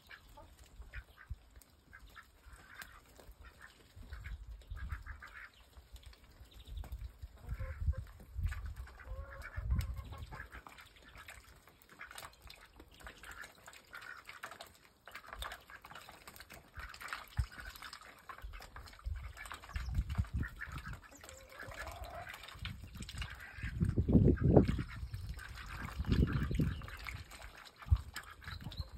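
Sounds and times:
ducks calling: 0.0s - 5.6s, 8.9s - 14.4s, 19.2s - 22.6s.

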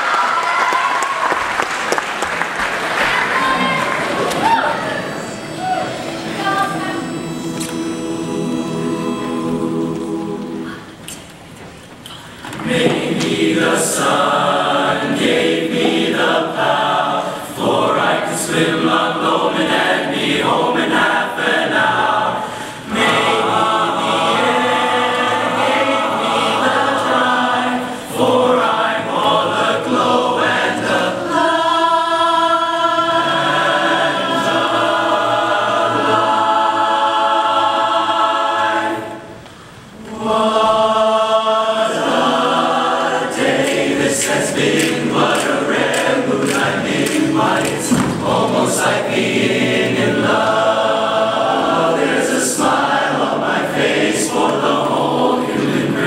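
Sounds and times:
boys' chorus singing in harmony: 3.1s - 11.1s, 12.2s - 56.0s.

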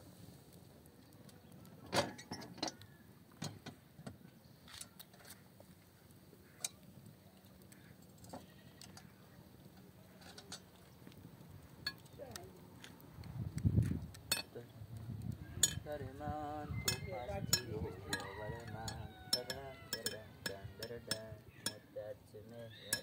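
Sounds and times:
metal hook clinking on griddle: 14.3s - 14.6s, 15.6s - 15.9s, 16.8s - 22.0s, 22.7s - 23.0s.

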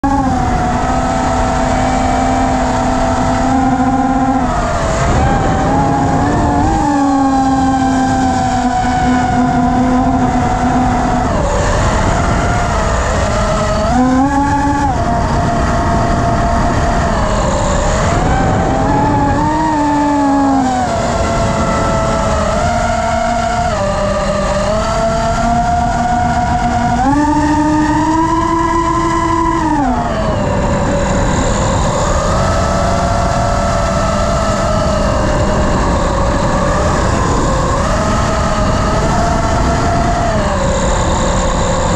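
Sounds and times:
drone motors whining: 0.0s - 41.9s
wind rushing: 0.3s - 32.2s.

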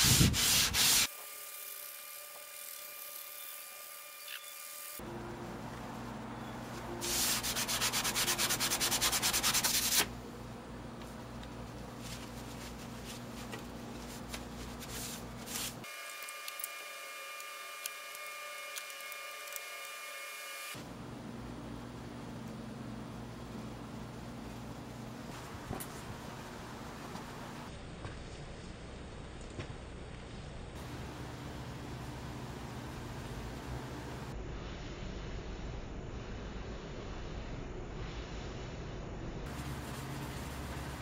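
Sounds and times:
abrasive pad scrubbing steel: 7.0s - 10.1s.

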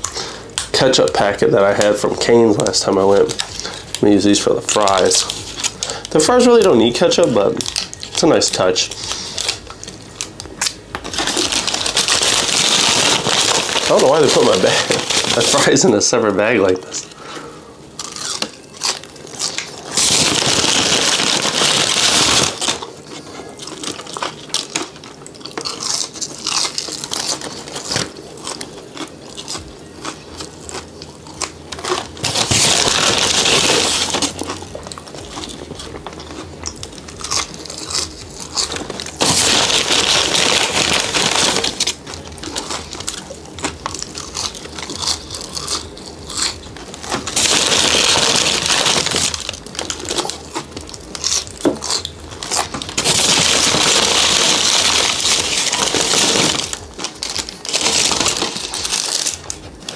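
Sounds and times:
person chewing fries: 0.0s - 0.7s, 1.7s - 15.7s, 17.9s - 59.9s
paper bag rustling: 11.0s - 16.1s, 19.4s - 24.8s, 31.8s - 36.0s, 38.6s - 43.3s, 46.8s - 51.2s, 52.4s - 59.9s.

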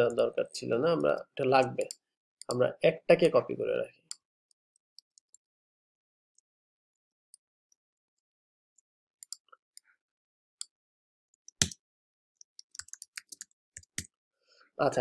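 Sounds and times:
keyboard typing: 12.4s - 14.1s.

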